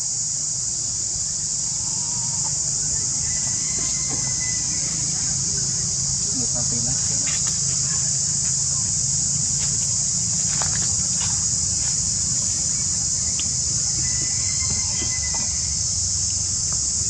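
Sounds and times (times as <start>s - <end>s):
insect chorus droning: 0.0s - 17.0s.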